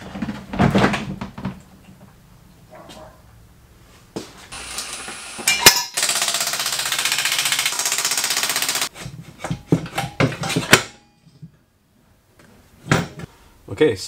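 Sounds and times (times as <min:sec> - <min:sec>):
impact wrench rattling: 0:04.8 - 0:11.0.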